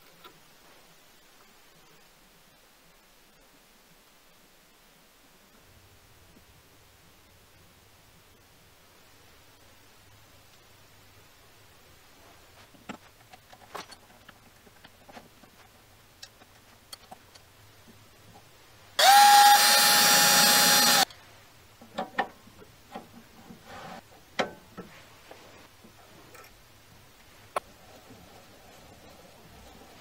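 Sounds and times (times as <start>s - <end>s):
cordless drill whine: 19.0s - 21.1s.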